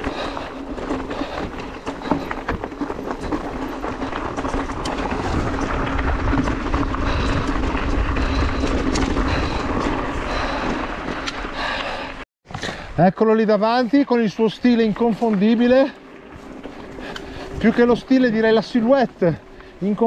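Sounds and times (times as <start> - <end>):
bike rattling and knocking: 0.0 - 12.0, 14.2 - 20.0
tyres crunching over stones: 0.0 - 12.0, 14.2 - 20.0
low rumble: 0.0 - 12.2.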